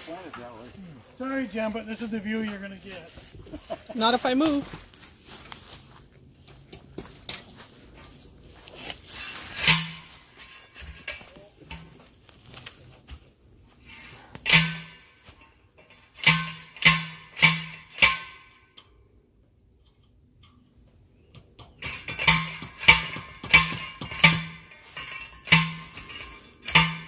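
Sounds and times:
faint scuffing: 0.0 - 10.4
hammer striking metal staples: 21.4 - 24.7.

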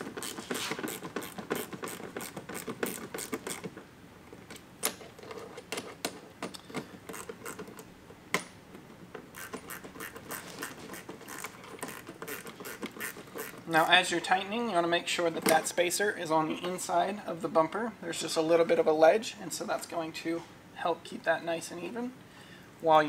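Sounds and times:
screwdriver ratchet clicking: 0.0 - 3.7, 6.5 - 7.9, 9.3 - 13.6.

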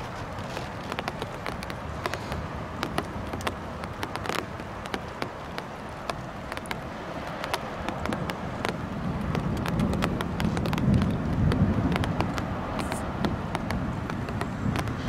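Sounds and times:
raindrops tapping on hard surface: 0.0 - 15.0
steady rain hiss: 0.0 - 15.0
low thunder rumble: 7.6 - 15.0.

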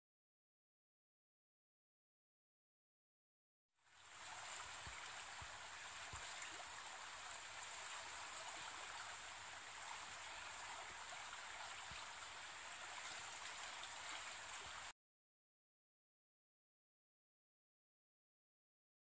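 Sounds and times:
stream of running water: 3.8 - 15.0.

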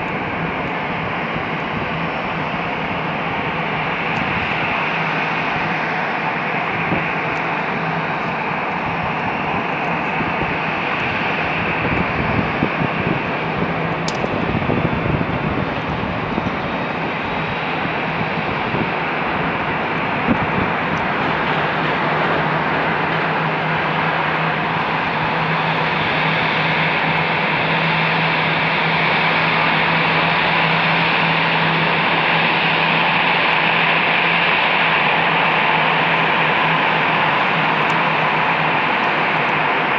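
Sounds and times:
distant jet engines rushing: 0.0 - 39.9.

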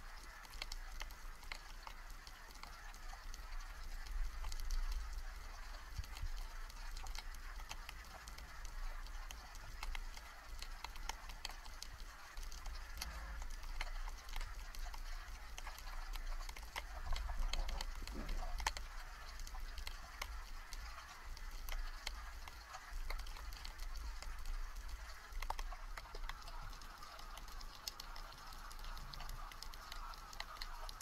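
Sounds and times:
sharp clicks and crackles: 0.0 - 31.0
underwater rumble of moving water: 0.0 - 31.0.

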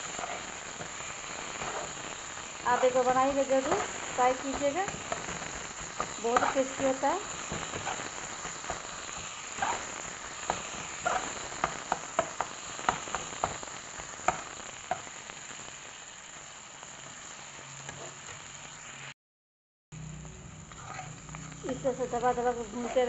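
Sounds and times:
masala sizzling in oil: 0.0 - 19.2, 20.0 - 23.0
metal spatula scraping pan: 6.0 - 6.9, 9.5 - 11.4, 20.7 - 21.6.

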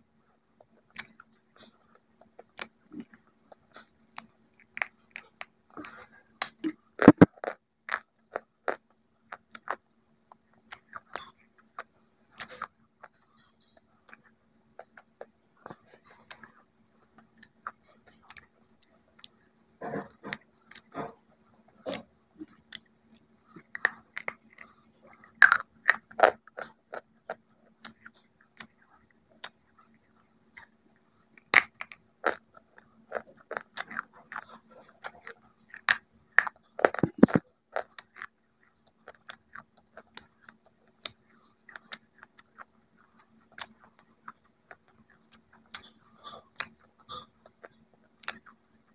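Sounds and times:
faint steady hum: 0.0 - 48.9
chewing: 0.6 - 48.9
crisp crunching bites: 33.1 - 38.3.

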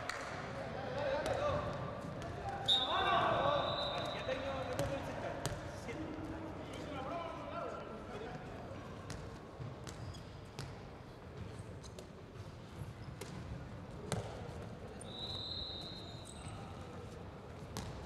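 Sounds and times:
ball slaps echoing: 0.0 - 0.5, 13.2 - 14.5, 17.8 - 18.0
ball bouncing in hall: 0.0 - 7.0, 8.2 - 15.1, 17.6 - 18.0.

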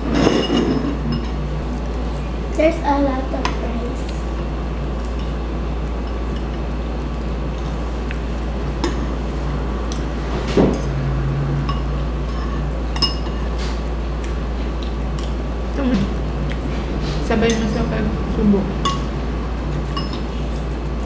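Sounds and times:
steady low hum: 0.0 - 21.0
metal spoon clinking against bowl: 11.6 - 13.5, 19.8 - 20.3.

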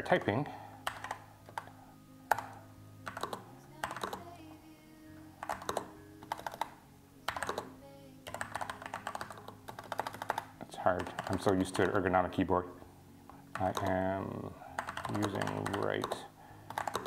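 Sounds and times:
soft background music: 0.0 - 17.0
clicky mechanical keyboard typing: 0.9 - 1.7, 2.3 - 4.3, 5.4 - 6.7, 7.3 - 7.7, 8.3 - 12.0, 13.5 - 14.0, 14.8 - 17.0.

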